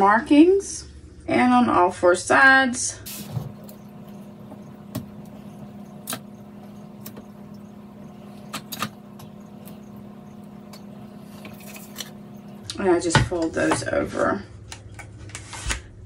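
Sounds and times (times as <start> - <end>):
steady low hum: 2.9 - 14.8
tape clicks and taps: 6.0 - 6.3.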